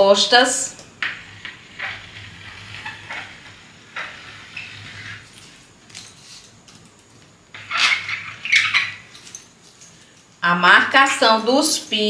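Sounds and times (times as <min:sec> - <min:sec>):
tracing wheel scraping on paper: 0:01.0 - 0:06.4, 0:07.5 - 0:09.2.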